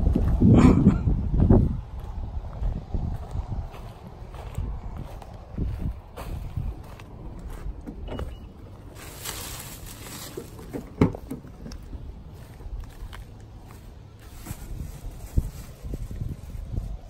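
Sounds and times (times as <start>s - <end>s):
wind rumble on microphone: 0.0s - 17.0s
handling sounds: 7.8s - 16.6s.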